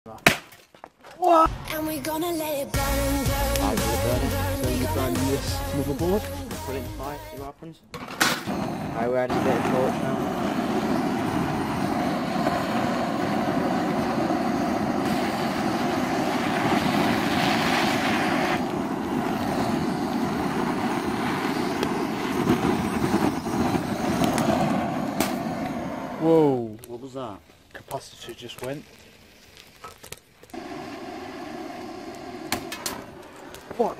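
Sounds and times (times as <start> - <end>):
sharp pops: 0.1 - 1.8, 20.6 - 25.8, 26.6 - 33.9
torch flame roaring: 2.8 - 6.4, 8.3 - 33.9.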